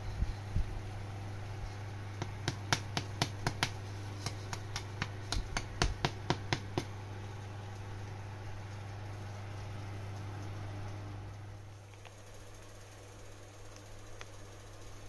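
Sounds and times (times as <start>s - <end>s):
steady low hum: 0.0s - 15.0s
stick tapping crispy skin: 2.2s - 8.9s.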